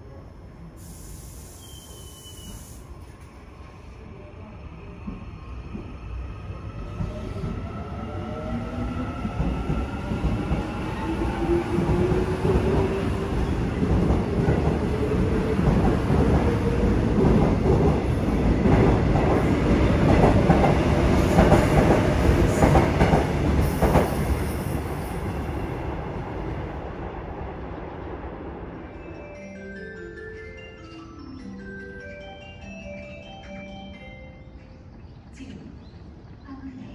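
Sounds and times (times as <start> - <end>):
train wheels clattering on rails: 9.2 - 24.6.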